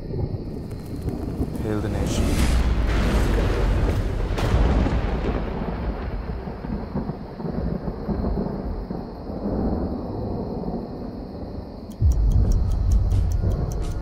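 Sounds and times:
deep rolling rumble: 0:00.5 - 0:06.3.

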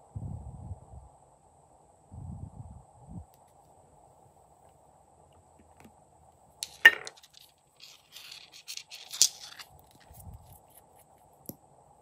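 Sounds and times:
plastic bottles scraping and clicking: 0:06.6 - 0:10.2.

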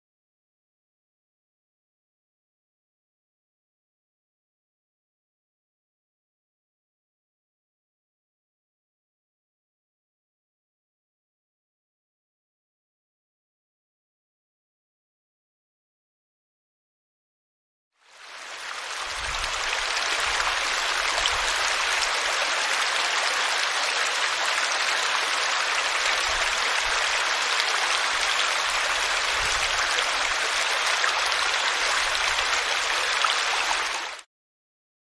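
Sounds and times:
stream splashing over rocks: 0:18.2 - 0:34.2.

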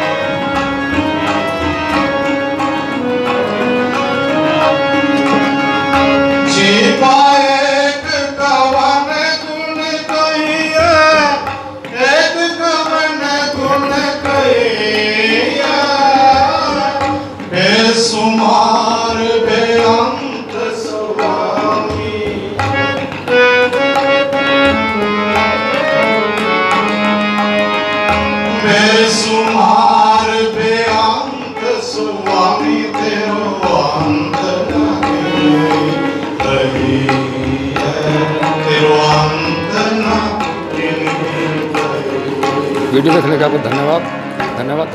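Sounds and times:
harmonium: 0:00.0 - 0:44.9
tabla drums: 0:00.0 - 0:44.9
man singing a hymn: 0:04.3 - 0:23.0, 0:28.4 - 0:44.2.

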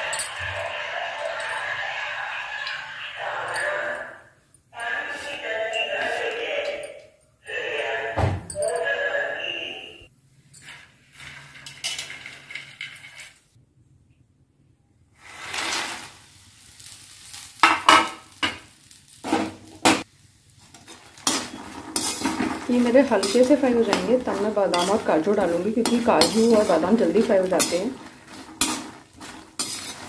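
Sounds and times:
soft sizzle of frying: 0:15.1 - 0:30.0
metal spatula scraping pan: 0:20.6 - 0:30.0.

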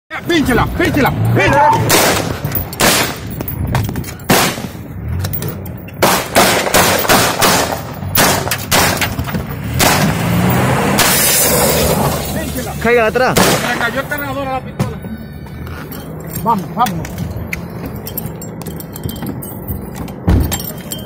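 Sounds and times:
pistol shots: 0:01.8 - 0:03.3, 0:04.3 - 0:04.7, 0:06.0 - 0:09.0.

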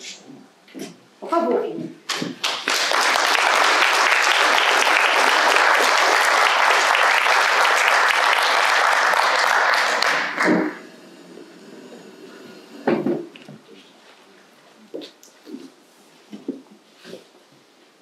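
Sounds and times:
people applauding: 0:02.1 - 0:11.0.

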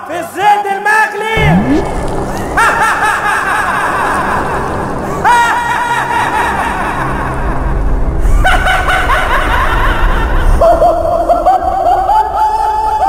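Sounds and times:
villainous laughter: 0:08.2 - 0:13.0.

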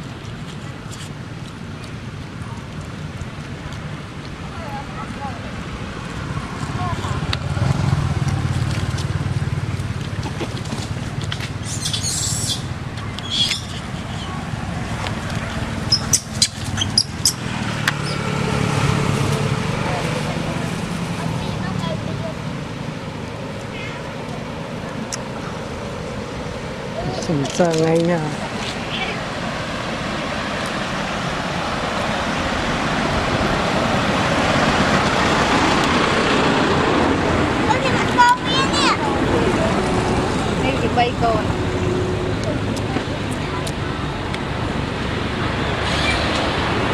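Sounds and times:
vehicle approaching: 0:00.0 - 0:46.9
high-pitched chirps and squeaks: 0:11.6 - 0:14.4, 0:15.8 - 0:17.4.

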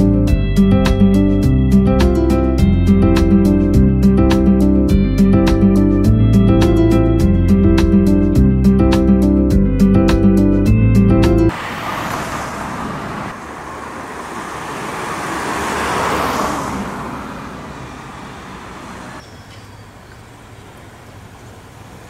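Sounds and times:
vehicle passing by: 0:11.5 - 0:19.2.

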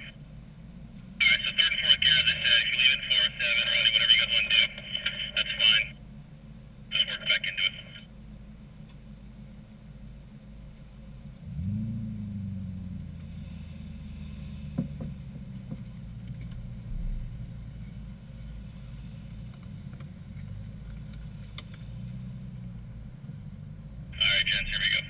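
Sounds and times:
car engine starting and revving: 0:11.2 - 0:25.0.

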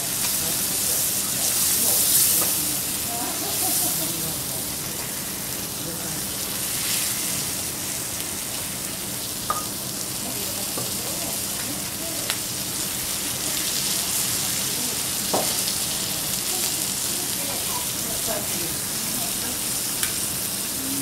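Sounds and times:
meat sizzling on a griddle: 0:00.0 - 0:21.0.

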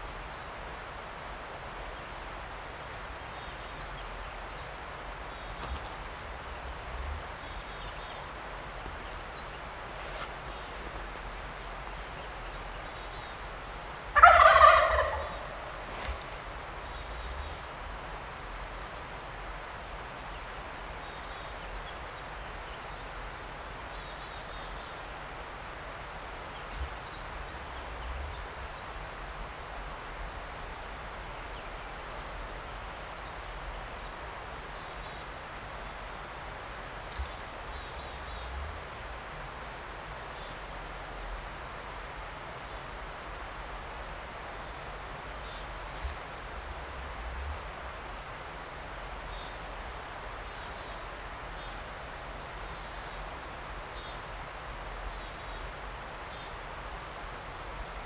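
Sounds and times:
steady rushing background noise: 0:04.8 - 0:14.2
small birds chirping: 0:36.6 - 0:40.6.

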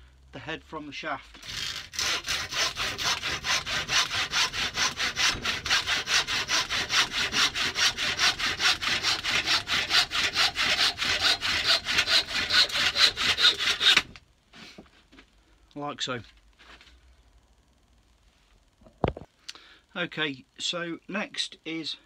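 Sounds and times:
hand saw cutting wood: 0:01.4 - 0:14.2.

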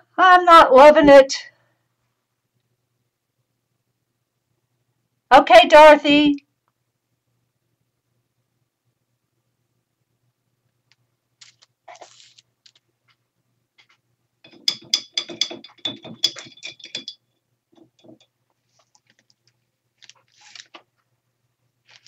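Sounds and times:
plastic sheets rustling: 0:11.4 - 0:12.9, 0:18.6 - 0:21.1, 0:21.8 - 0:22.0.

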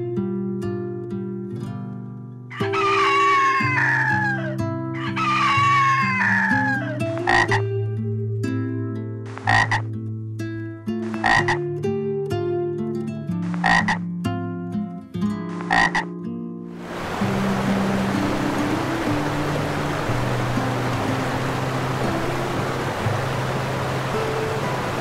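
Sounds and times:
rooster crowing: 0:02.5 - 0:07.4
light background music: 0:02.5 - 0:25.0
short animal calls: 0:09.4 - 0:09.8, 0:11.1 - 0:11.6, 0:13.5 - 0:14.0.

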